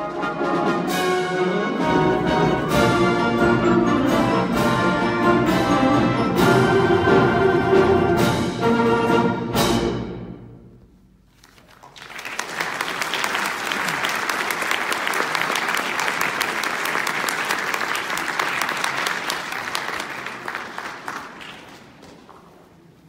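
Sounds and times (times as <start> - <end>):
audience applauding: 11.4 - 22.5.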